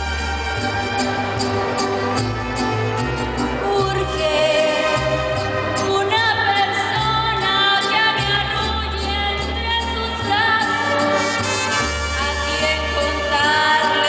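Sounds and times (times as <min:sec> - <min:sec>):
deep bass line: 0:00.0 - 0:04.4
guitars: 0:00.0 - 0:14.0
violins: 0:00.0 - 0:14.0
woman singing into microphone: 0:03.6 - 0:05.2, 0:05.8 - 0:11.2, 0:12.2 - 0:14.0.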